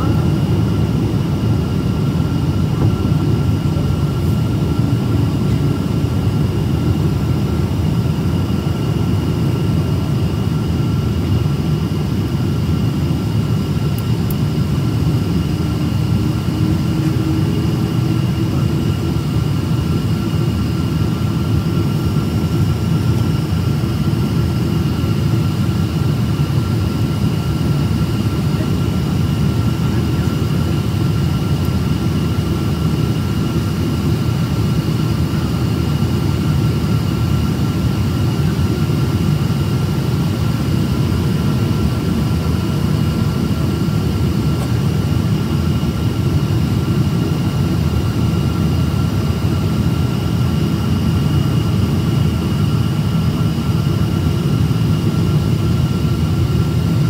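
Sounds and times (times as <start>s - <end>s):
jet engine cabin rumble: 0.0s - 57.0s.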